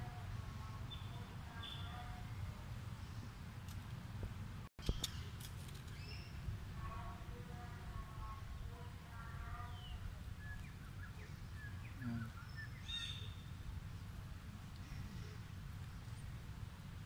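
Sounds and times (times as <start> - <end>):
low steady rumble: 0.0 - 17.0
high bird chirps: 9.7 - 13.5.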